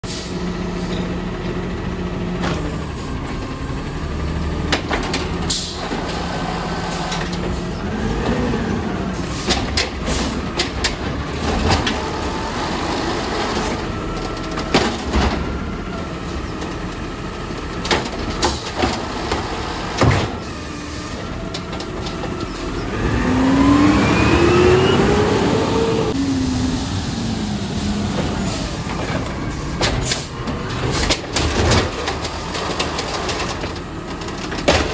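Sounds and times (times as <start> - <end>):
garbage truck engine running: 0.0 - 34.9
engine revving with rising whine: 22.8 - 29.1.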